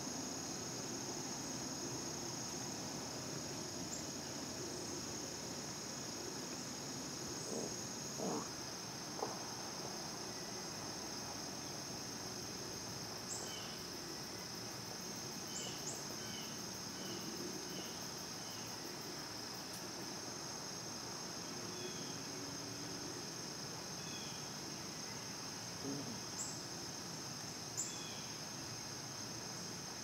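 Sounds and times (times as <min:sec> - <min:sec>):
insect chorus drone: 0:00.0 - 0:30.0.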